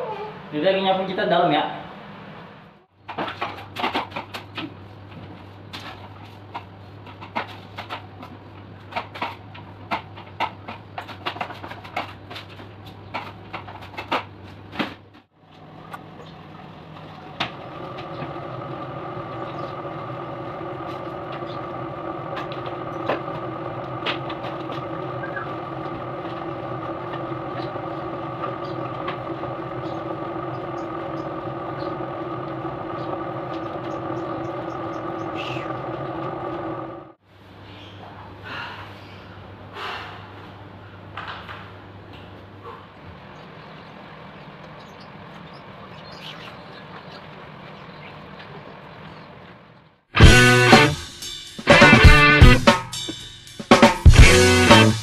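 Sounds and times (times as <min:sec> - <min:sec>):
motor drone with held tones: 0:15.8 - 0:37.2, 0:53.8 - 0:55.0.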